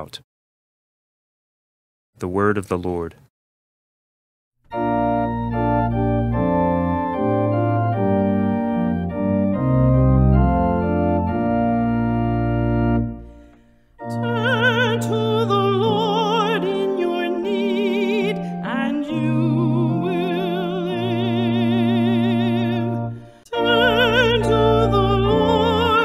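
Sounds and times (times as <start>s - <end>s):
organ playing sustained chords: 4.7s - 26.0s
person singing with vibrato: 14.0s - 26.0s.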